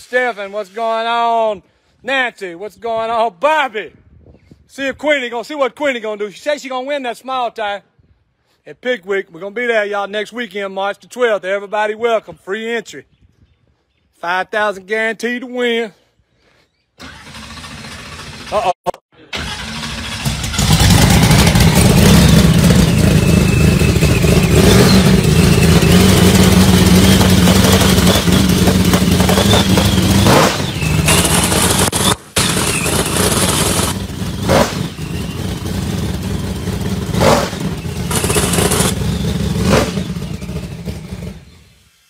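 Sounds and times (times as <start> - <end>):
race engine running: 19.4 - 41.7.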